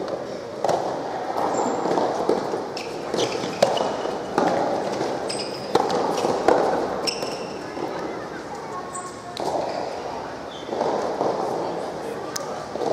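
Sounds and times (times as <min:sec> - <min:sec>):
rackets striking ball: 0:00.0 - 0:07.9
ball bouncing on hard court: 0:00.6 - 0:07.6.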